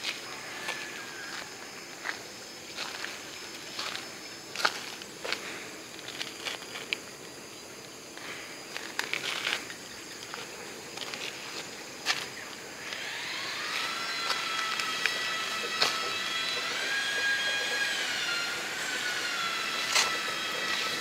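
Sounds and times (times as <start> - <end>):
high-pitched whine: 0.0 - 21.0.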